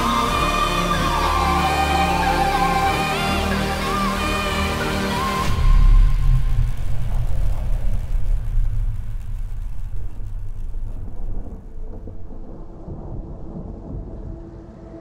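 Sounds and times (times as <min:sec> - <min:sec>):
ambient music pad: 0:00.0 - 0:07.4
deep cinematic rumble: 0:05.2 - 0:15.0.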